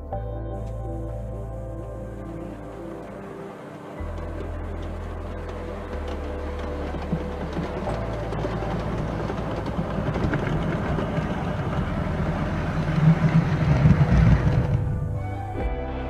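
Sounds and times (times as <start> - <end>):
model train wheels clattering: 2.8 - 14.9.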